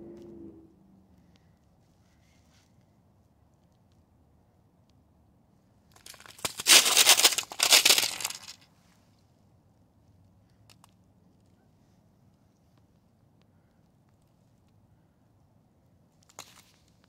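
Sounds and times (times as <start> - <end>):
loud close crackling and crunching: 6.0 - 8.6.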